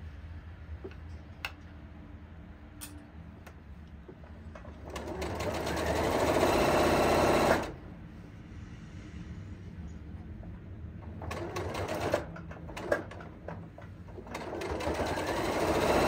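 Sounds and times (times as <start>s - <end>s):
sewing machine stitching: 4.6s - 7.8s, 11.2s - 16.0s.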